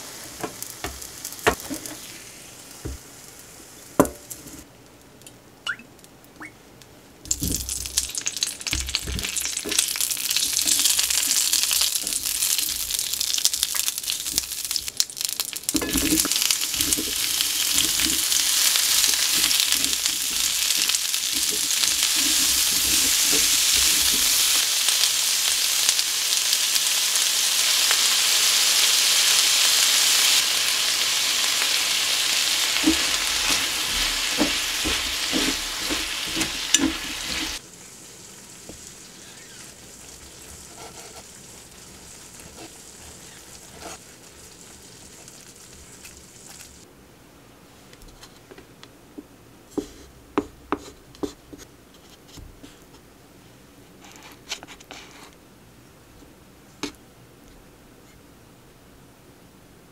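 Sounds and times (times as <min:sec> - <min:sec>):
food sizzling in frying pan: 0:00.0 - 0:04.6, 0:07.3 - 0:46.9.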